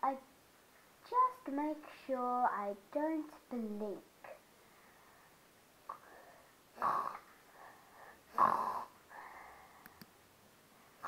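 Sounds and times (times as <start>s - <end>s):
soft breaths: 4.2s - 11.0s
person imitating snoring: 6.8s - 7.3s, 8.3s - 9.0s.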